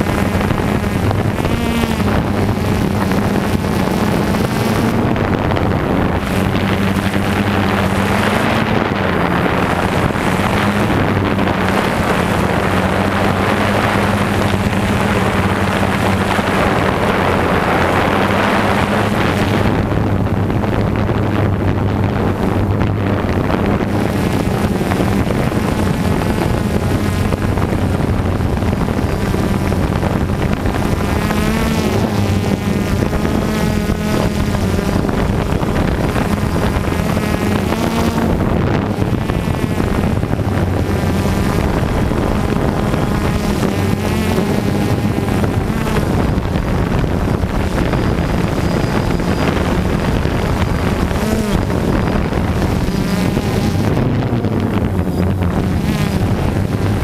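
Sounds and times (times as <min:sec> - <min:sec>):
drone propellers buzzing: 0:00.0 - 0:57.0
wind rushing over microphone: 0:00.0 - 0:57.0.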